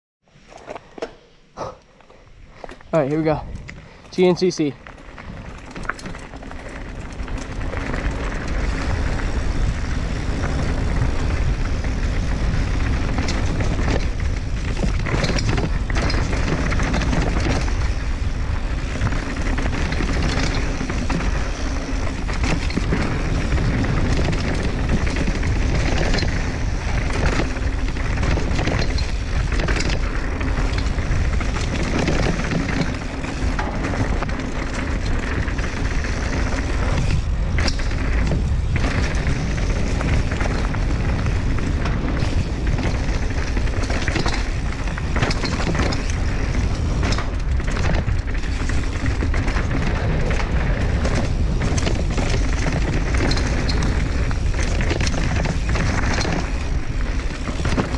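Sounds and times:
bike knocking and rattling: 0:02.0 - 0:57.9
wind rushing over microphone: 0:02.4 - 0:57.9
tyres rolling on dirt: 0:02.5 - 0:57.9.

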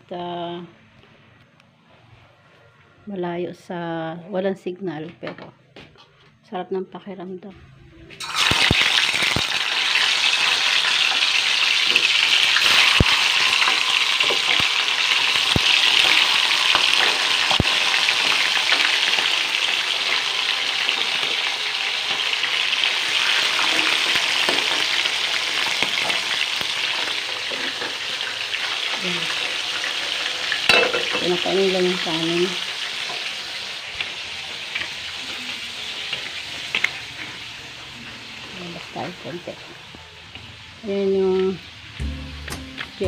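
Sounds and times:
fish sizzling in hot oil: 0:08.2 - 0:39.9.

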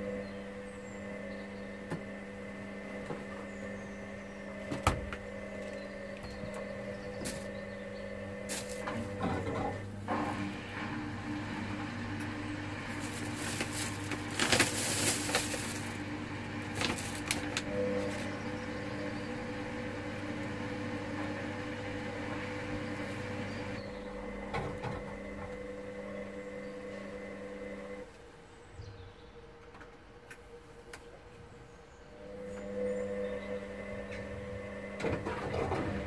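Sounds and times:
washing machine motor humming: 0:00.0 - 0:28.4, 0:31.2 - 0:36.0.

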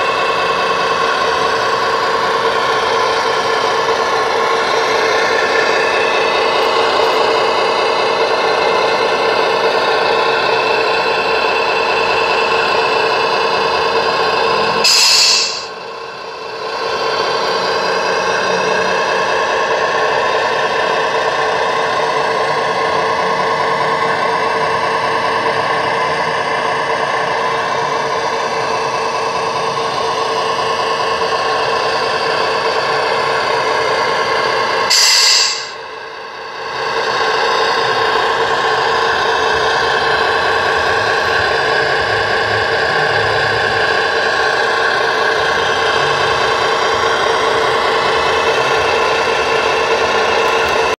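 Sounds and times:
model truck mechanical whine: 0:00.0 - 0:50.9
short sharp hiss: 0:14.9 - 0:15.7, 0:34.9 - 0:35.8.

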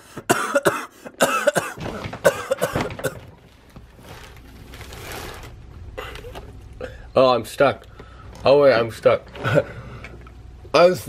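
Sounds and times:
man coughing: 0:00.1 - 0:03.3.

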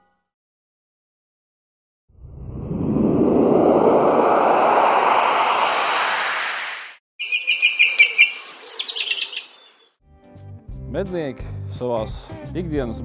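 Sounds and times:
rush of noise rising in pitch: 0:02.2 - 0:07.0
songbird chirping and trilling: 0:07.2 - 0:10.0.

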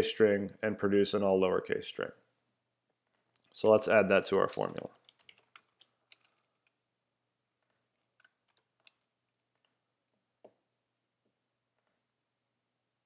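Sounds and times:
keyboard and mouse clicks: 0:03.0 - 0:03.6, 0:05.0 - 0:06.8, 0:07.6 - 0:09.8, 0:11.8 - 0:12.0.

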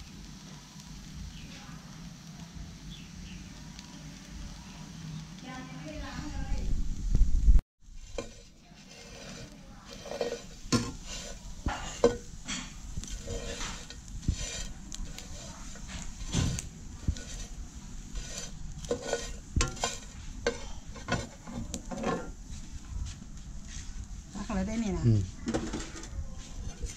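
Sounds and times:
metal spoon scraping frying pan: 0:07.9 - 0:22.4, 0:25.4 - 0:26.9.

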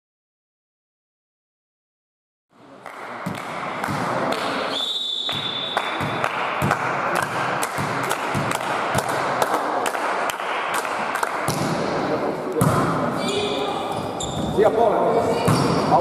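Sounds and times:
murmur of hall noise: 0:02.6 - 0:16.0
balls bouncing on hall floor: 0:02.8 - 0:16.0
high whistle-like tone: 0:04.7 - 0:05.8.

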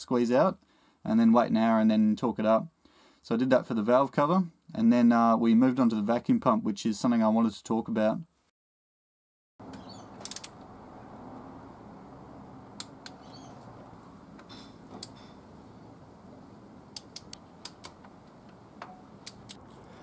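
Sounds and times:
low background hiss: 0:09.6 - 0:20.0
socket ratchet clicking: 0:10.2 - 0:10.6.

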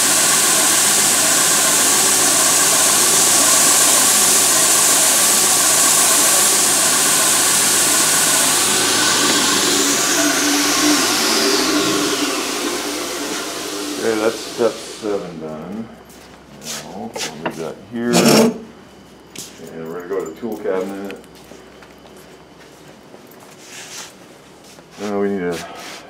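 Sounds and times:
belt sander running: 0:00.0 - 0:15.5, 0:18.1 - 0:18.7
sander belt winding down whine: 0:00.0 - 0:15.5
metal frets grinding on belt: 0:18.0 - 0:18.7.

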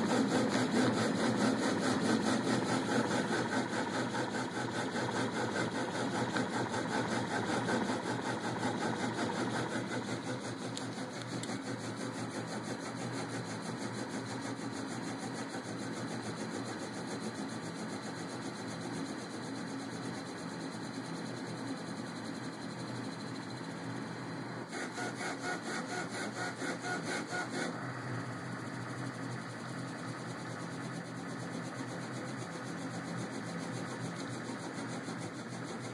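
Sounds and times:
stepper motors whirring: 0:00.0 - 0:13.8, 0:24.6 - 0:29.2.

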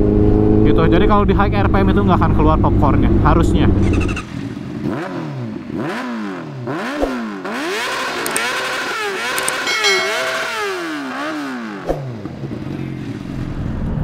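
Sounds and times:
motorcycle engine revving: 0:04.8 - 0:09.6.

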